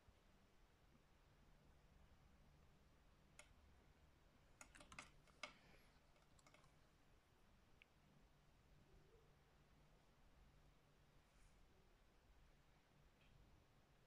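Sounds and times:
faint clicks and taps of tools: 0:04.6 - 0:06.8.

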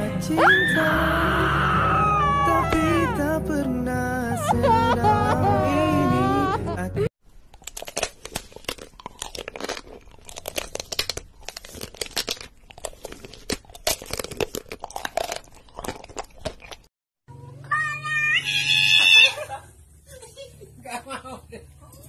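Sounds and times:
crunching and chewing food: 0:07.2 - 0:16.9.

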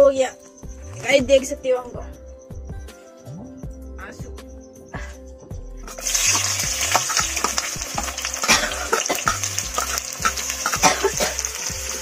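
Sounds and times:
onions sizzling in oil: 0:05.9 - 0:12.0
metal spoon scraping pan: 0:08.5 - 0:11.1.

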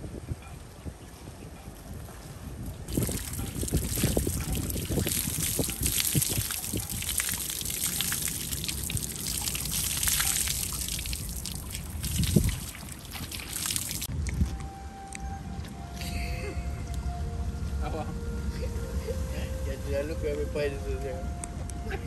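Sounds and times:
hose water splashing and dripping: 0:02.9 - 0:14.6.

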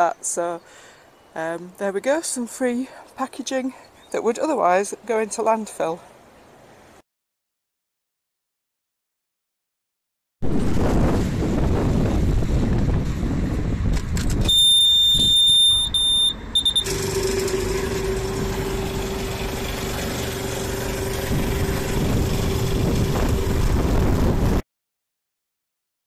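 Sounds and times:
wind buffeting microphone: 0:10.4 - 0:15.9, 0:20.8 - 0:24.6
high electronic beep: 0:14.5 - 0:16.9
air compressor humming: 0:14.5 - 0:24.3.

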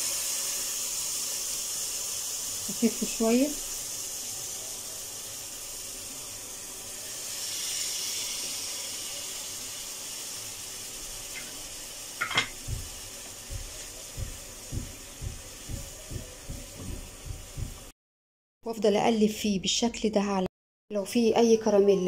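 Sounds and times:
syrup boiling in saucepan: 0:00.0 - 0:17.9
spatula knocking in pan: 0:12.2 - 0:17.9.

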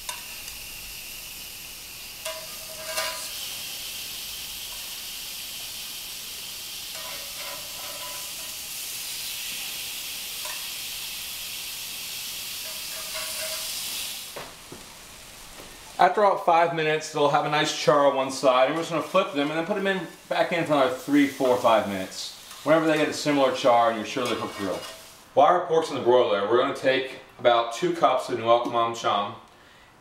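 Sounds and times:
meat sizzling in a pan: 0:00.0 - 0:16.2, 0:17.3 - 0:25.3
metal spatula clinking on pan: 0:02.2 - 0:03.3, 0:06.9 - 0:08.6, 0:12.6 - 0:13.7.

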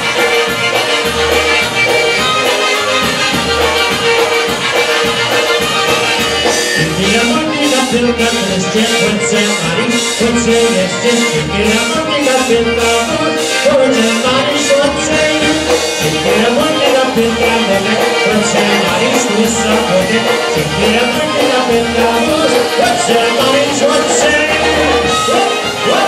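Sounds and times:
accordions: 0:00.0 - 0:26.0
bass guitar: 0:00.0 - 0:26.0
steady beat: 0:00.0 - 0:26.0.

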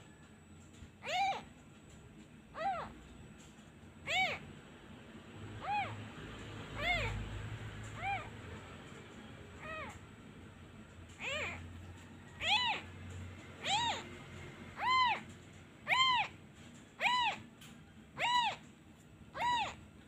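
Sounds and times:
kitten meowing: 0:01.0 - 0:01.5, 0:02.5 - 0:03.0, 0:04.0 - 0:04.5, 0:05.6 - 0:06.1, 0:06.7 - 0:08.4, 0:09.6 - 0:10.0, 0:11.2 - 0:11.8, 0:12.4 - 0:12.9, 0:13.6 - 0:16.4, 0:17.0 - 0:17.5, 0:18.2 - 0:18.7, 0:19.3 - 0:19.9.

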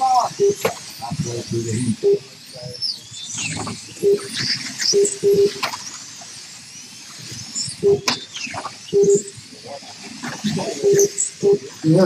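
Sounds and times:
slot car motors whining: 0:00.0 - 0:12.0
short timer beeps: 0:04.9 - 0:05.6, 0:08.9 - 0:09.3.

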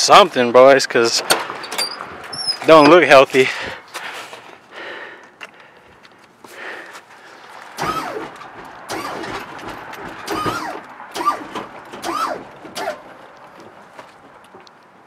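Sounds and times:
hydraulic pump motor whining: 0:07.8 - 0:13.1.

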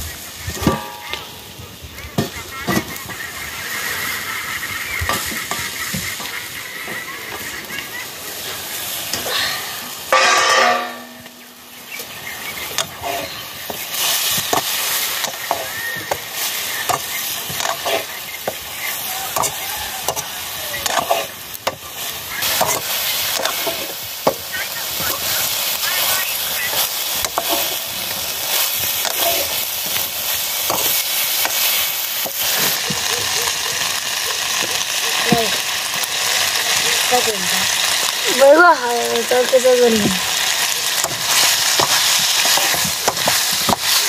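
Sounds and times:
food frying and sizzling: 0:00.0 - 0:44.0
metal ladle scraping pan: 0:08.8 - 0:12.1, 0:12.8 - 0:24.1, 0:26.7 - 0:30.0
metallic ring of pan lid: 0:10.1 - 0:11.6.

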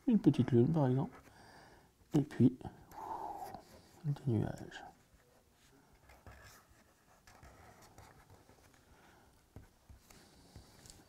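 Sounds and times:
pen scratching on paper: 0:06.1 - 0:08.8.

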